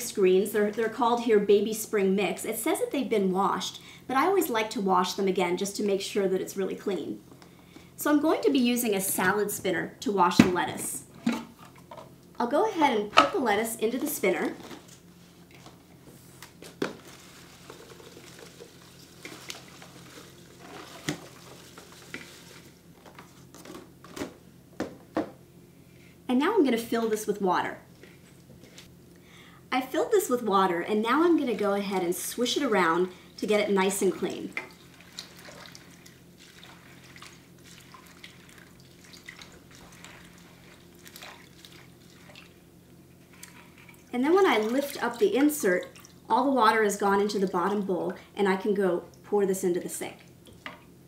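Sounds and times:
salad greens rustling: 14.4s - 23.8s
leaves sloshing in water: 16.6s - 22.9s, 34.6s - 42.6s.

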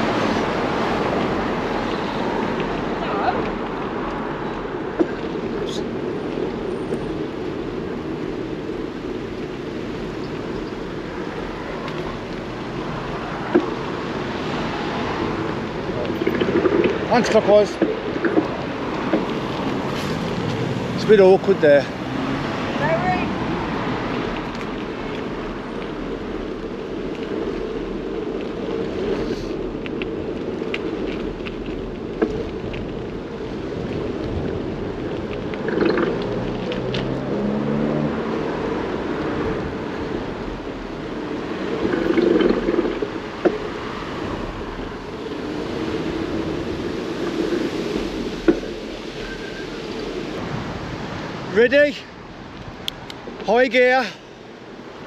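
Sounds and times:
wind over microphone: 0.0s - 53.4s
bicycle tyres rolling on road: 0.0s - 55.0s.

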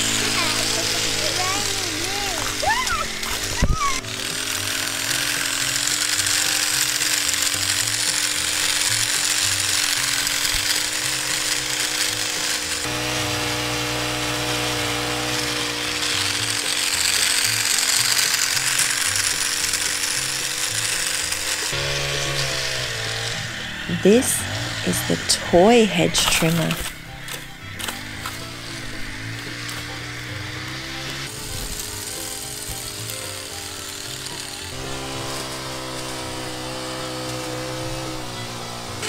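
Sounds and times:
hedge trimmer running: 0.0s - 39.0s
background music: 13.6s - 39.0s.

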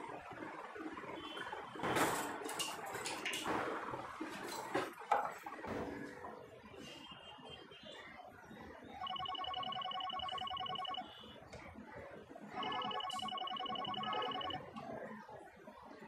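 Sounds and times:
mobile phone ringing: 9.0s - 11.4s, 12.6s - 14.8s.

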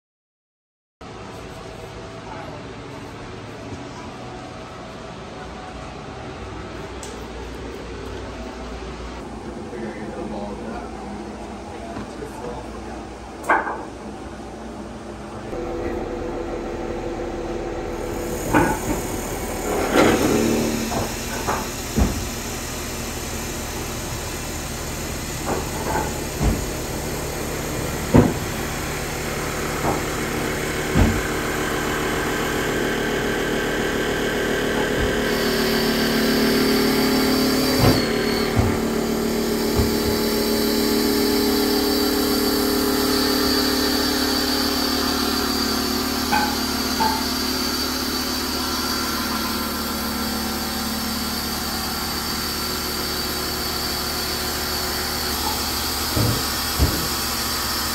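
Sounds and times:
high machine whine: 1.0s - 57.9s
lathe machine running: 14.0s - 57.9s
sharp knocks: 28.1s - 28.6s, 55.4s - 57.2s.

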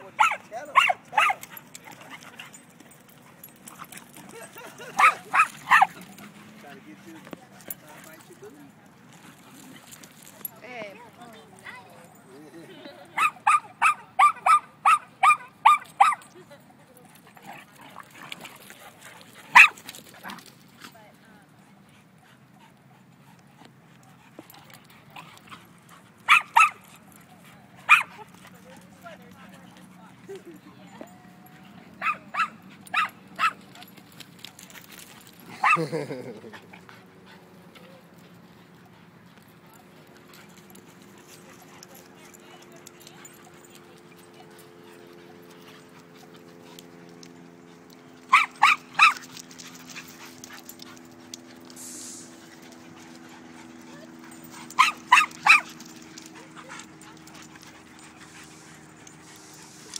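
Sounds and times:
dog barking: 0.2s - 1.4s, 5.0s - 6.0s, 13.2s - 16.2s, 19.6s - 19.8s, 26.3s - 26.8s, 27.9s - 28.2s, 32.0s - 33.6s, 48.3s - 49.2s, 54.7s - 55.7s.

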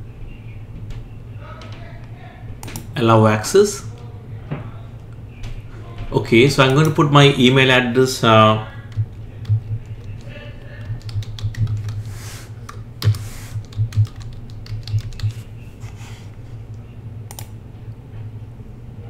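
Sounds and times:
steady low hum: 0.0s - 19.0s
computer keyboard typing: 6.6s - 7.0s, 8.8s - 15.5s, 17.3s - 17.5s.

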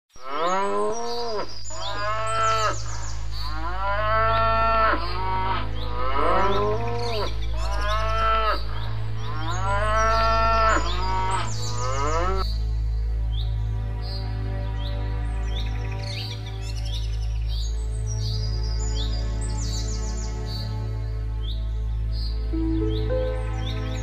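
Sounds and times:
cows mooing: 0.2s - 2.8s, 3.4s - 12.4s.

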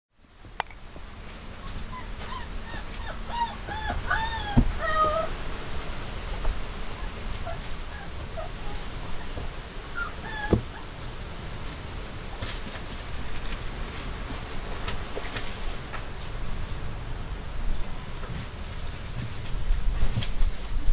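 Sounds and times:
puppy whimpering: 1.6s - 5.4s, 6.3s - 11.0s.

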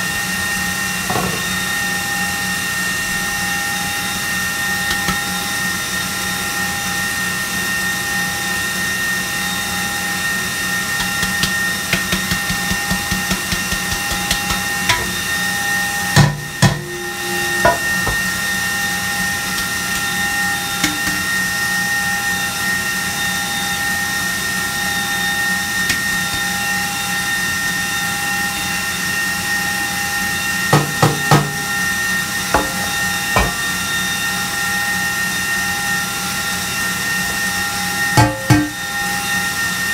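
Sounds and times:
electric stand mixer whining: 0.0s - 39.9s
pan knocking on counter: 17.6s - 18.3s, 30.8s - 31.6s, 32.6s - 33.6s.

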